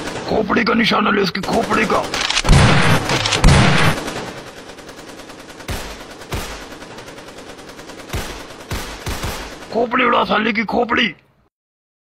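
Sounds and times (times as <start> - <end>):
gunshots: 0.0 - 0.7, 1.4 - 10.0.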